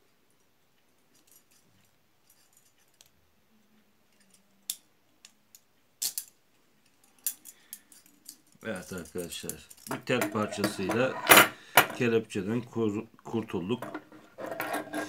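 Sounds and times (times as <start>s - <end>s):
handcuffs clicking and rattling: 1.1s - 3.2s, 4.1s - 11.1s.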